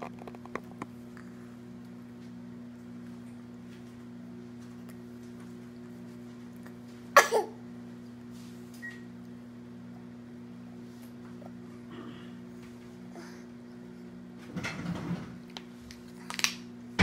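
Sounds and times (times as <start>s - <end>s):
steady low hum: 0.0s - 17.0s
baby coughing: 7.2s - 7.6s.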